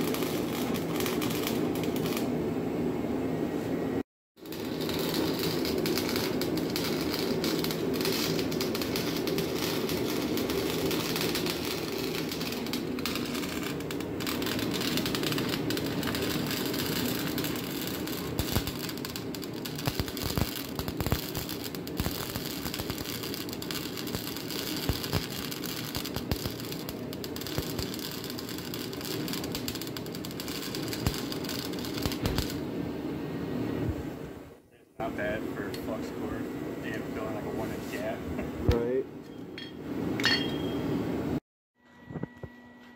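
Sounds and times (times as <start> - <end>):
arc welding crackling and popping: 0.0 - 2.4, 4.4 - 32.7, 38.6 - 39.0.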